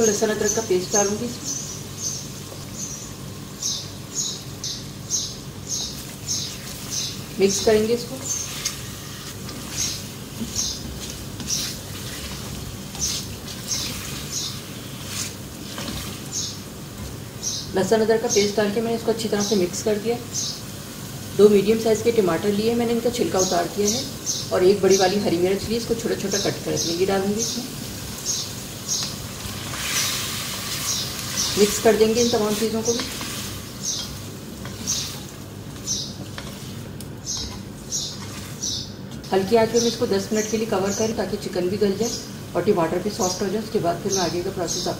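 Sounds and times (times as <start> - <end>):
chicken stirred in oil: 8.2 - 17.3, 28.8 - 39.3.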